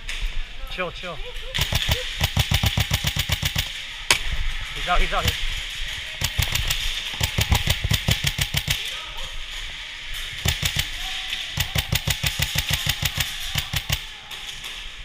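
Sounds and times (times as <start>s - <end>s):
airsoft rifle firing rapidly: 1.5s - 9.2s, 10.3s - 14.5s.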